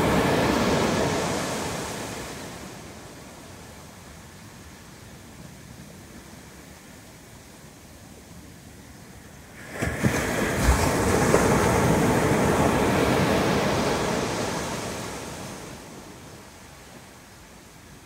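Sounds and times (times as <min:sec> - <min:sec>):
ocean wave crashing on shore: 0:00.0 - 0:03.3, 0:09.6 - 0:16.2
foaming wave wash: 0:00.0 - 0:03.4, 0:09.6 - 0:16.2.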